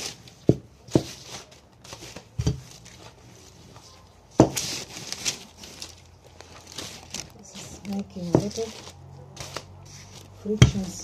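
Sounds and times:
soft rustling: 0.0 - 11.0.

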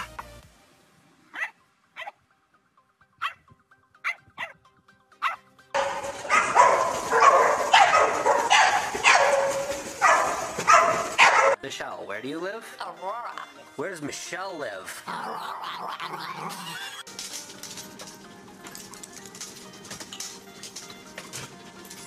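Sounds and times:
dog barking: 1.3 - 2.2, 3.2 - 3.4, 4.0 - 4.6, 5.2 - 11.6.

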